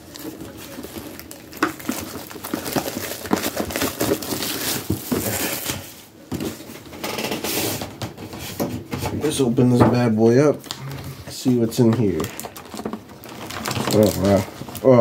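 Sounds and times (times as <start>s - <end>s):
packaging crinkling and rustling: 0.0s - 9.4s, 10.4s - 15.0s.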